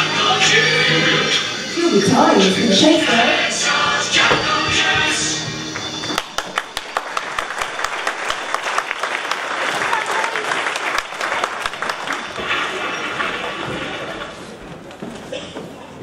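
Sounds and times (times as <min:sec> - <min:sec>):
music: 0:00.0 - 0:08.8
voices: 0:00.1 - 0:05.2
audience applauding: 0:05.7 - 0:14.4.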